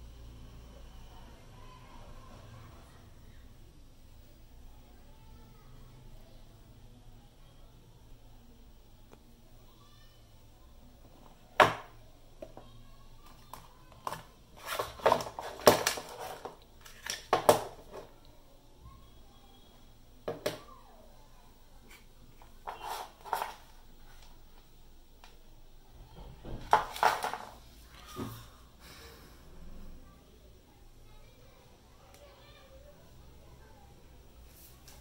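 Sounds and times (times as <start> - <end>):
cardboard box rustling: 14.6 - 17.0.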